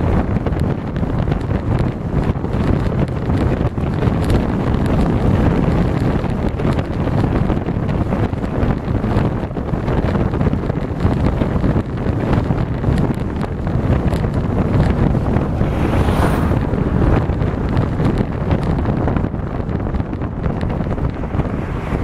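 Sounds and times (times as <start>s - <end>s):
road noise: 0.0s - 22.0s
wind buffeting microphone: 0.0s - 22.0s.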